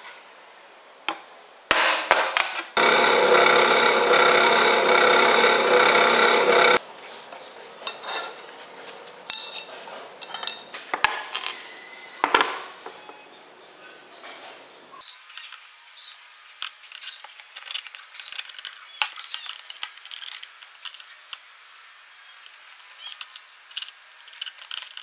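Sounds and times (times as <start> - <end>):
drill press drilling steel: 2.8 - 6.8
light metal clinks and scrapes: 7.8 - 10.8.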